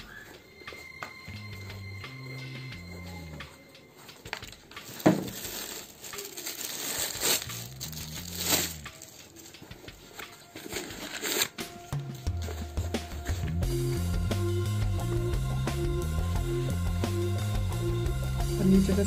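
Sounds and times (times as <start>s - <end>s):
packaging rustling: 4.0s - 13.6s
box knocks and clatters: 4.9s - 5.6s.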